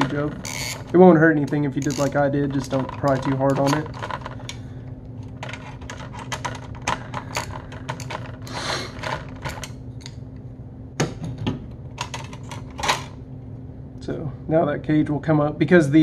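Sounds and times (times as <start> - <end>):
screwdriver clicking and scraping: 0.0 - 1.0, 1.8 - 2.2
low steady hum: 0.0 - 16.0.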